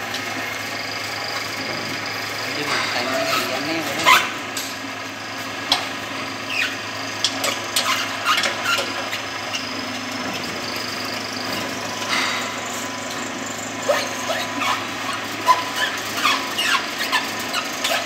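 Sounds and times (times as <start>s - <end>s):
oil expeller humming: 0.0s - 18.0s
short clicks and squeaks: 6.4s - 9.8s, 13.8s - 18.0s.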